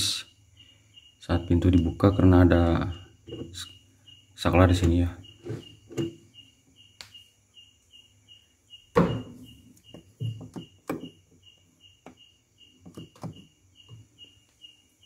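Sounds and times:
high chirping: 0.0 - 15.0
fridge dial knocks and clicks: 4.6 - 6.2, 8.9 - 11.2, 12.8 - 14.1.

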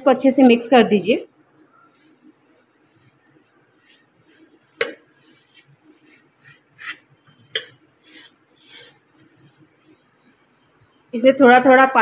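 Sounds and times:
hand rubbing flour in bowl: 1.9 - 10.1.

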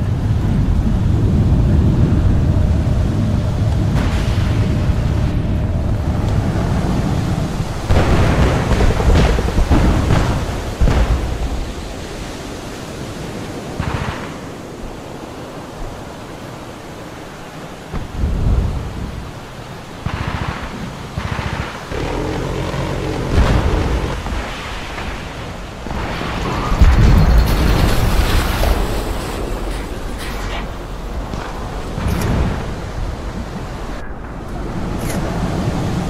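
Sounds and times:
steady low rumble: 0.0 - 12.4, 17.9 - 36.0
distant explosions booming: 0.0 - 12.8, 20.0 - 35.6.

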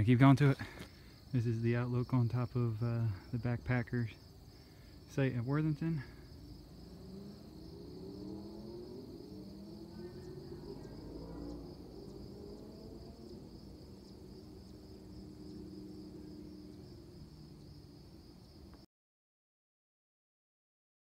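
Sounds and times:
crickets trilling: 0.0 - 18.8
low wavering drone: 6.1 - 18.4.

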